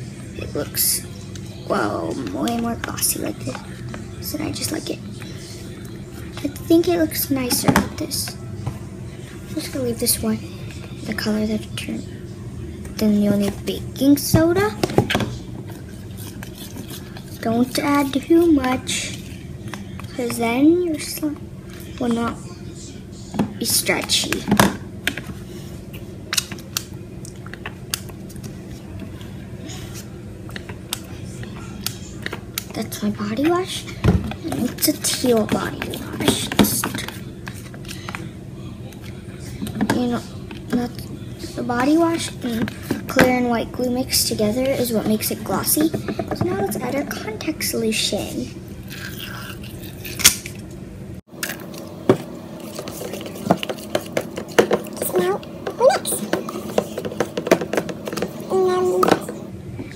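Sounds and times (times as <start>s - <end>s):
spoon scraping plastic bowl: 15.7s - 20.5s, 52.1s - 59.4s.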